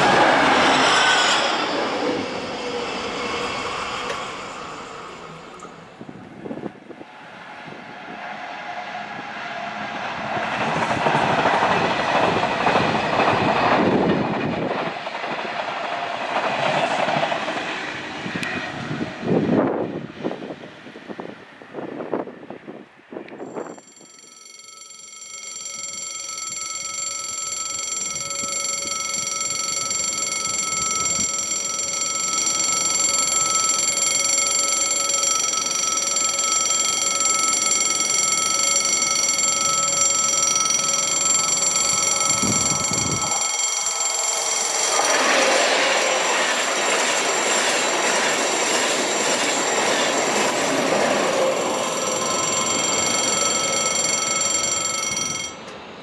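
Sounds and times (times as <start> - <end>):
level crossing warning bell: 0.0 - 7.1, 23.4 - 56.0
high-speed train passing: 0.0 - 23.8, 25.6 - 56.0.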